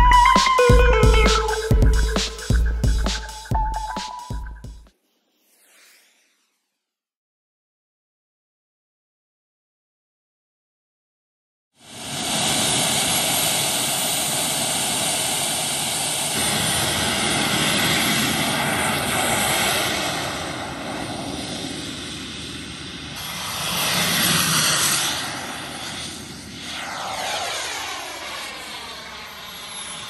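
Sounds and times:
model airplane engine running: 0:11.8 - 0:30.0.

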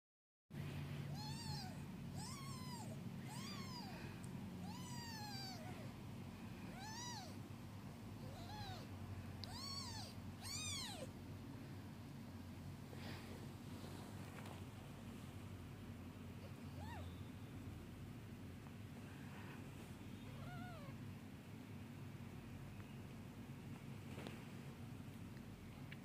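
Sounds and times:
kittens mewing: 0:01.1 - 0:06.0, 0:06.7 - 0:07.4, 0:08.2 - 0:11.2.

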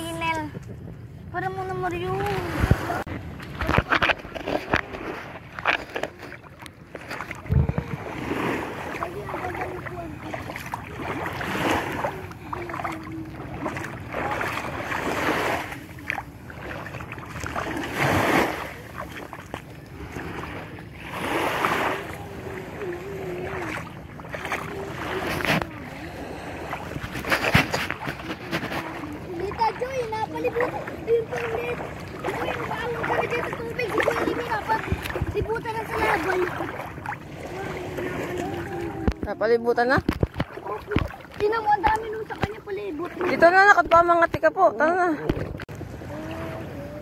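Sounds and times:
wind noise: 0:00.0 - 0:06.1, 0:06.8 - 0:09.7, 0:24.9 - 0:42.6
water splashing: 0:01.6 - 0:47.0
faint wavering hum: 0:21.8 - 0:39.2.

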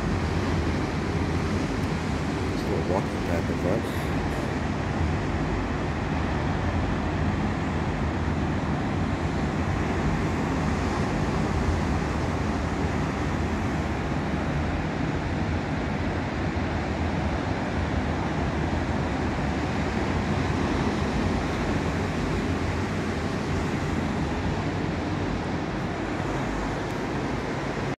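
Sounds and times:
distant ocean surf: 0:00.0 - 0:27.9.

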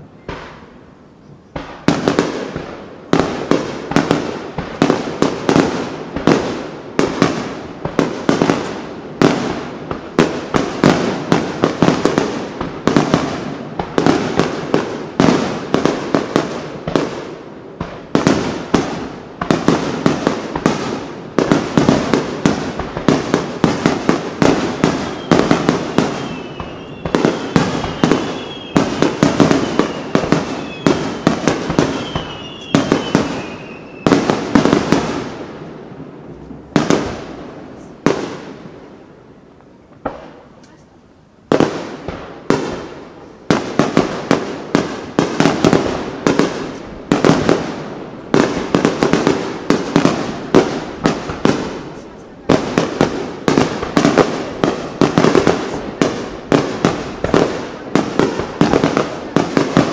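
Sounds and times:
faint firework whistle: 0:00.1 - 0:01.8, 0:24.8 - 0:34.3
firework shells bursting: 0:21.4 - 0:35.3.

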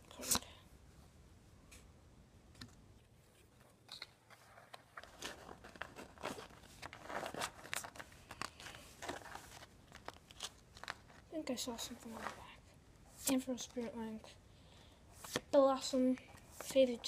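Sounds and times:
trading cards shuffled: 0:03.9 - 0:12.5.

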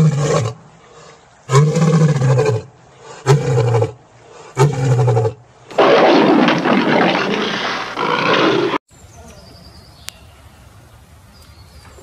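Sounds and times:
lion roaring: 0:04.6 - 0:08.8.

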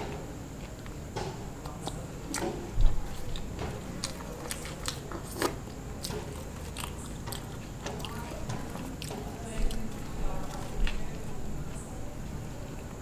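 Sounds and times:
person chewing crackly clicks: 0:01.6 - 0:11.9.

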